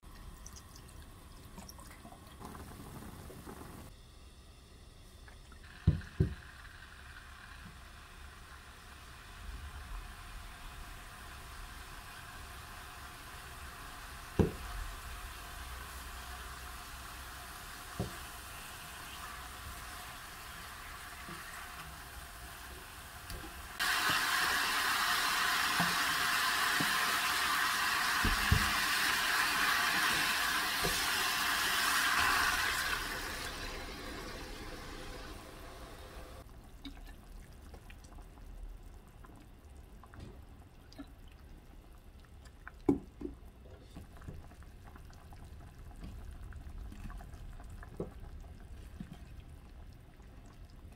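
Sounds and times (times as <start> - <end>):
water rushing into a pot: 5.4 - 38.0.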